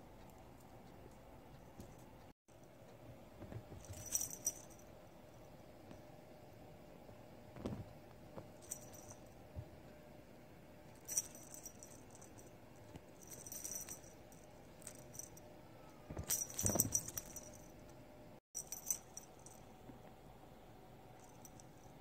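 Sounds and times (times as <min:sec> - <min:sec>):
cat toy jingling: 0:03.8 - 0:04.8, 0:11.0 - 0:12.4, 0:13.2 - 0:15.4, 0:16.2 - 0:17.7
bump and rustle: 0:16.0 - 0:17.6.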